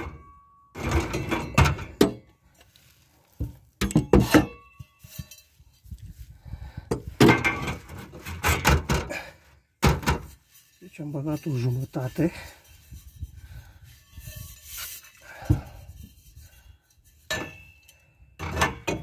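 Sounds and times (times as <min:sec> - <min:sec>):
metal clanks and thunks: 0:00.0 - 0:02.4, 0:03.4 - 0:05.3, 0:06.9 - 0:10.5, 0:17.2 - 0:19.0.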